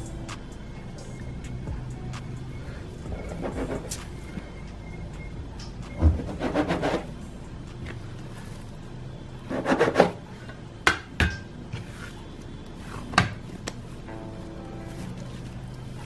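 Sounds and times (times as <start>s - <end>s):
bench scraper scraping on a mat: 3.2s - 4.0s, 6.2s - 7.1s, 9.5s - 10.2s
hands handling soft dough: 11.7s - 16.0s.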